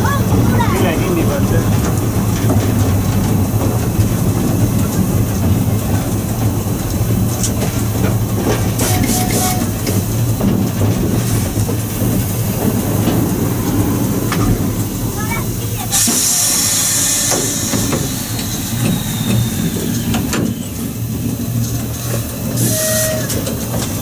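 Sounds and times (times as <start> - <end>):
steam locomotive rumbling: 0.0 - 24.0
wheel clatter over rails: 0.0 - 24.0
high squeal: 15.9 - 21.0.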